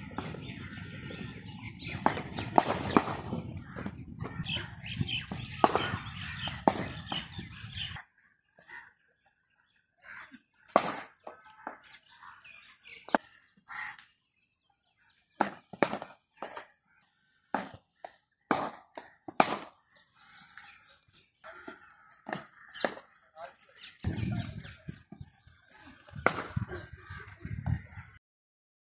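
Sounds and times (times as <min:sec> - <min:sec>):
cricket bats striking balls: 0:01.9 - 0:04.5, 0:05.2 - 0:07.4, 0:10.7 - 0:11.9, 0:15.4 - 0:16.7, 0:17.5 - 0:19.8, 0:21.6 - 0:23.1, 0:26.0 - 0:26.8.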